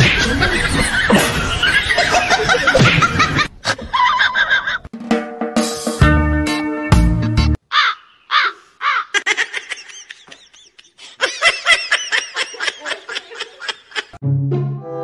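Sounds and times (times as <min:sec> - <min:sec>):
person laughing hard: 0:00.2 - 0:04.9, 0:07.8 - 0:14.2
music with low horn-like tone: 0:14.2 - 0:15.0.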